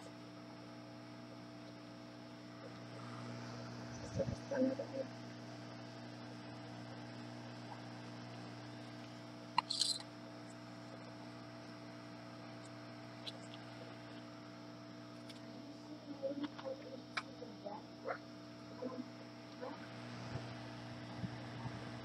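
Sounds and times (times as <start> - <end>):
electrical mains hum: 0.0 - 22.0
sharp click: 9.6 - 10.1.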